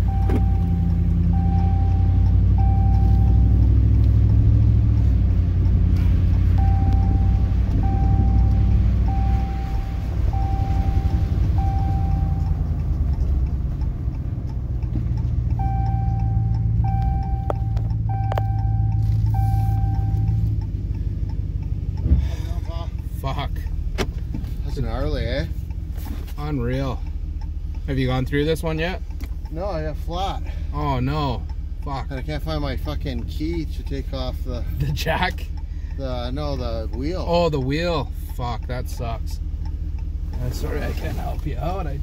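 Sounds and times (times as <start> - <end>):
electronic warning chime beeps: 0.0 - 3.4, 6.6 - 12.6, 15.6 - 20.3
car engine and tyre noise: 0.0 - 42.0.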